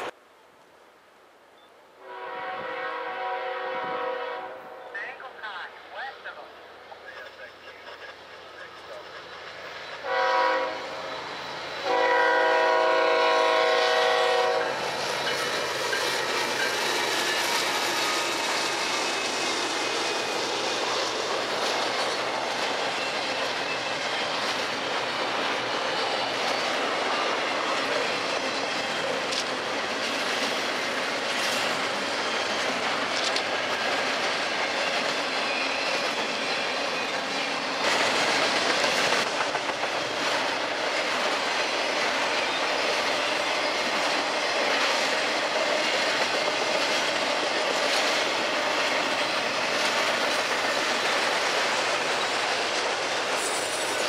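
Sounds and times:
locomotive air horn blast: 2.0s - 4.8s, 10.0s - 11.1s, 11.8s - 14.8s
freight train rumbling past: 2.0s - 54.0s
wheels clacking on rail joints: 14.2s - 54.0s.

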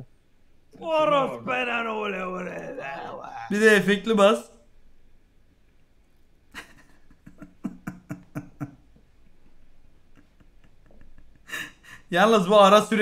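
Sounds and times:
stuttering voice-like fragments with echo: 0.8s - 3.8s.

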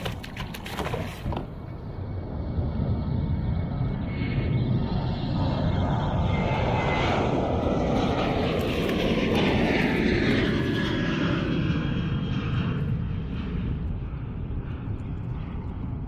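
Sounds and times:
fish thrashing splashes: 0.0s - 1.7s.

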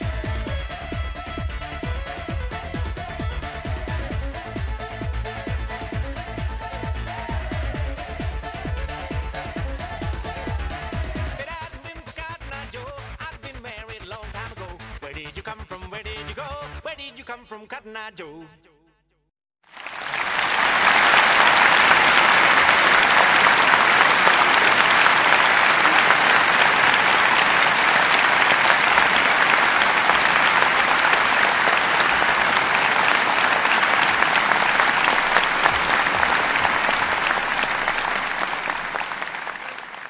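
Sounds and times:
audience applauding: 19.7s - 40.0s.

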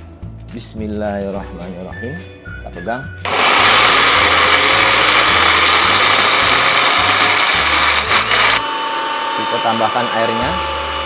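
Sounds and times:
electric blender grinding: 3.3s - 11.0s.

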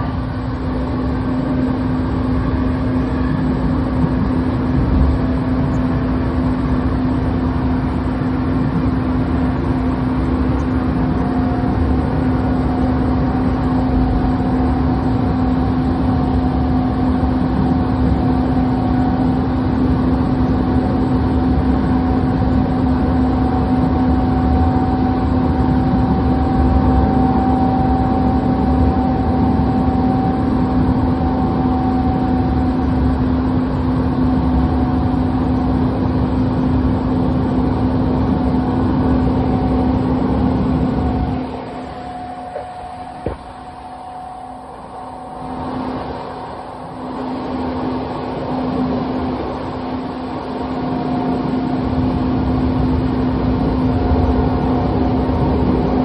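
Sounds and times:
light rail vehicle hum: 0.0s - 56.0s
faint electric whine: 37.6s - 56.0s.

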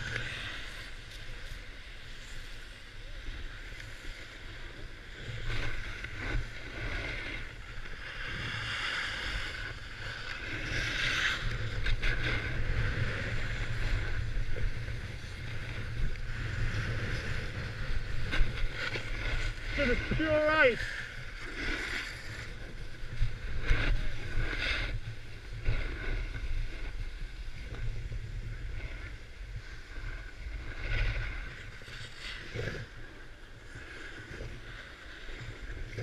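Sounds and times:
wind rumbling on microphone: 0.0s - 36.0s.

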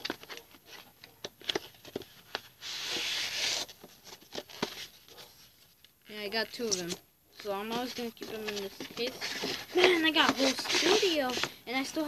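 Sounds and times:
cardboard sliding against cardboard: 1.5s - 5.7s, 7.9s - 12.0s.

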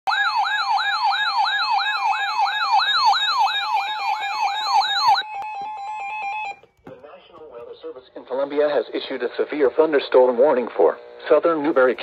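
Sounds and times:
weather radio siren alarm: 0.1s - 6.6s.

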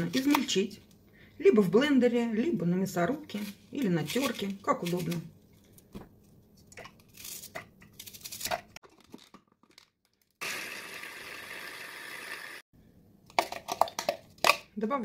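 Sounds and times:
electric chopper running: 10.4s - 12.6s.

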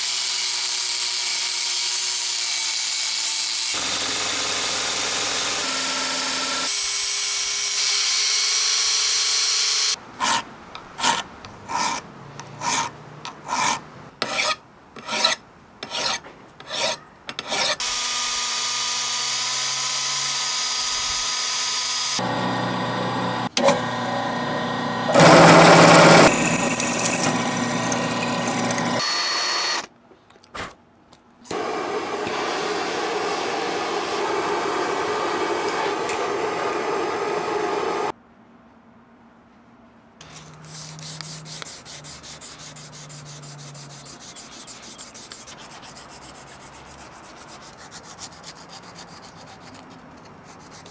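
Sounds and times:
hand file strokes on steel: 10.2s - 12.0s, 12.6s - 17.8s, 40.2s - 50.9s
belt grinder grinding steel: 25.1s - 29.0s.

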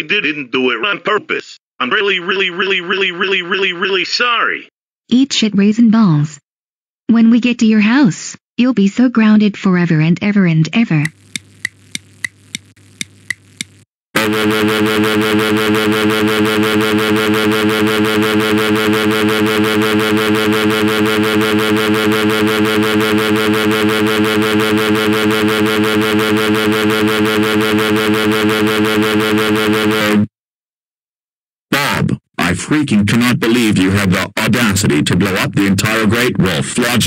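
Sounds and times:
distorted computer-voice yell: 1.8s - 4.6s, 14.2s - 30.3s, 31.7s - 37.0s.

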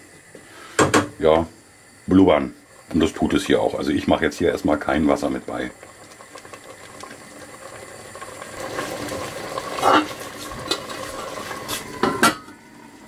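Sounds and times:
curry bubbling in a pot: 2.6s - 12.0s.

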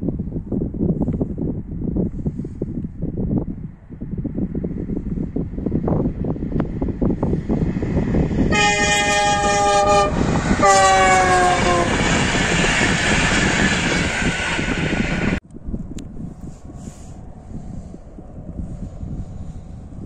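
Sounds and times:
train rushing past: 6.4s - 15.4s
train horn two chords: 8.5s - 12.2s.

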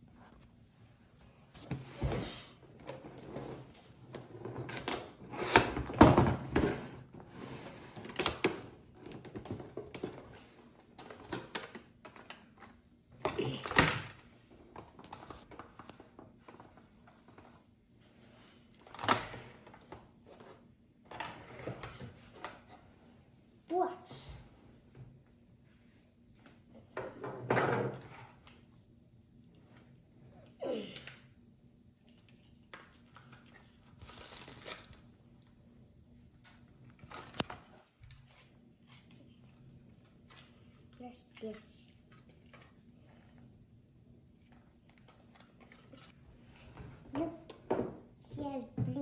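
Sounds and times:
plastic packaging crinkling and clicking: 32.2s - 35.6s, 36.4s - 40.6s.

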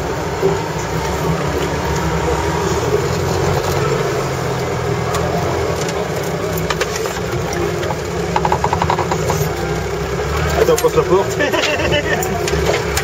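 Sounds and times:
engine running at low revs: 0.0s - 13.0s
vehicle knocks and rattles: 5.1s - 9.9s.

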